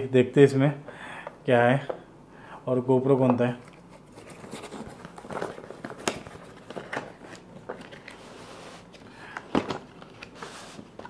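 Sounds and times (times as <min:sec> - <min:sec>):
cardboard box rustling and scraping: 0:04.1 - 0:09.0.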